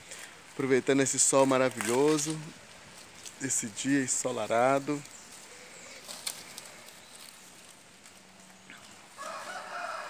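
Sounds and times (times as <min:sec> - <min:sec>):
faint rustling: 0:00.0 - 0:10.0
rooster crowing: 0:09.1 - 0:10.0.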